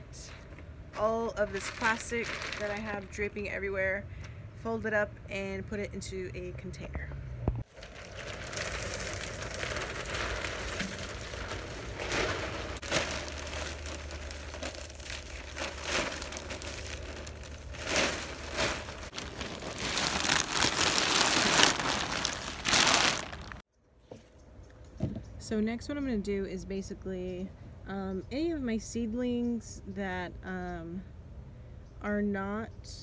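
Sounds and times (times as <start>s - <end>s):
plastic sheeting rustling and crinkling: 1.3s - 3.3s, 7.6s - 23.6s.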